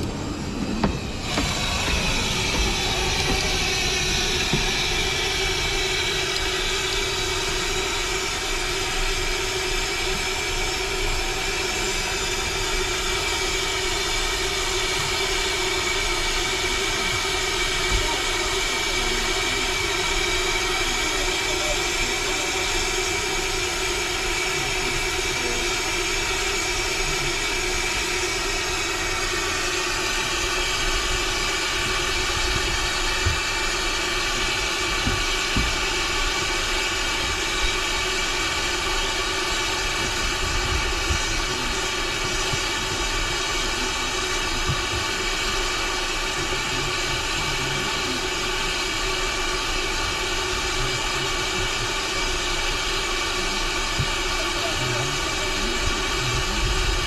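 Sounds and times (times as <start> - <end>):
vehicle engine running: 0.0 - 45.6.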